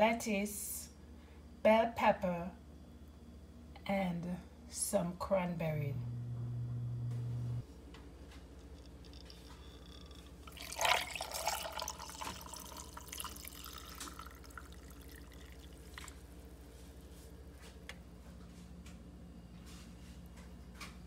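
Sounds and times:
drink pouring into glass of ice: 9.0 - 16.2.

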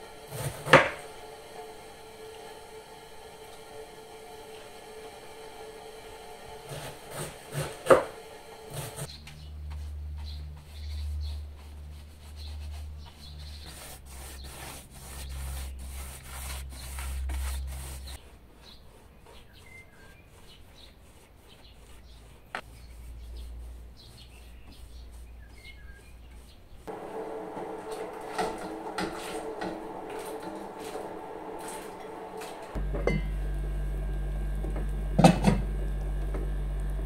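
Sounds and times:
paintbrush scratchy rubbing: 8.6 - 32.8
low rumble: 26.9 - 37.0.

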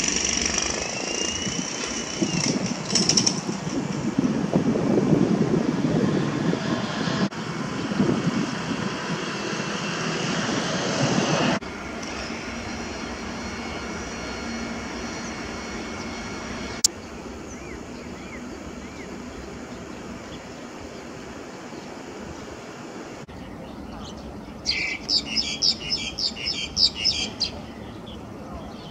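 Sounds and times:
outdoor background: 0.0 - 28.9
bird call notes: 23.3 - 28.9.

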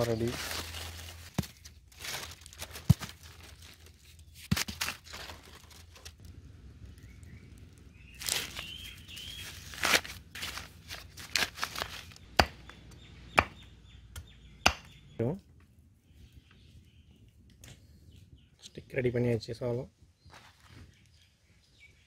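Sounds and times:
corn husks crackling and tearing: 0.0 - 12.6
machete chopping stick on log: 14.2 - 14.9.

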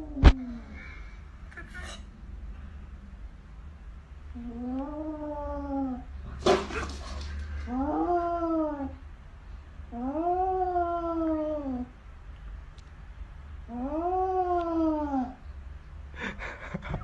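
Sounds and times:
cat hissing: 6.4 - 7.7.

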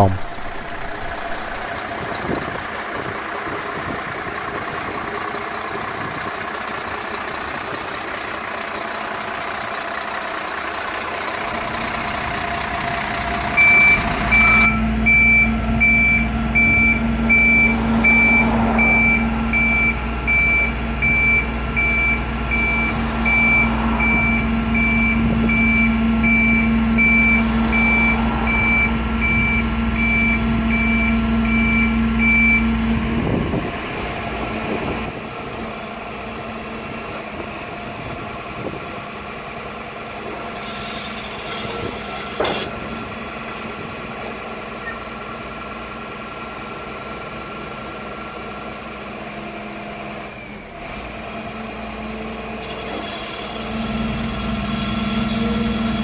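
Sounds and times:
warning beeper beeping: 0.0 - 1.6
hydraulics low drone: 0.0 - 6.4, 11.2 - 47.2
diesel truck engine running: 0.0 - 56.0.

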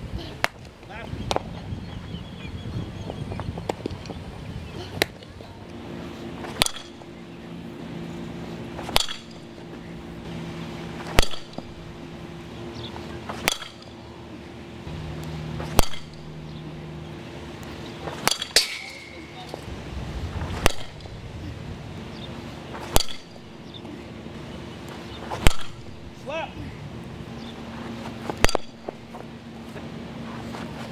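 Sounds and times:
steady low hum: 0.0 - 30.9
bat cracking a ball: 6.4 - 7.1, 8.8 - 9.6, 10.9 - 11.8, 13.2 - 14.0, 15.2 - 16.5, 17.6 - 19.7, 20.3 - 21.2, 22.1 - 23.4, 25.3 - 26.0, 28.3 - 29.0.

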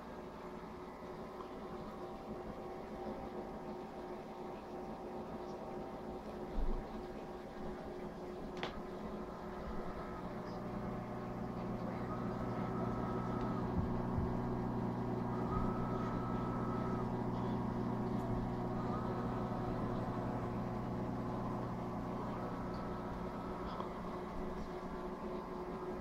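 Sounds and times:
aquarium pumps humming: 0.0 - 26.0
faint higher tone: 9.2 - 26.0.

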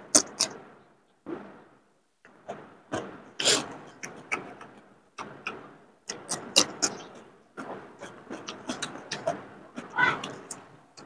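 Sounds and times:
wet chewing and lip smacks: 2.5 - 11.0.

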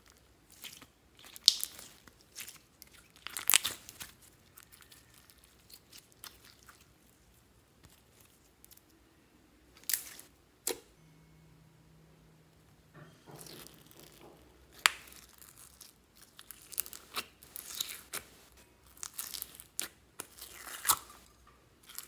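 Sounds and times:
slime squelching by hand: 0.0 - 8.9, 13.4 - 22.0.

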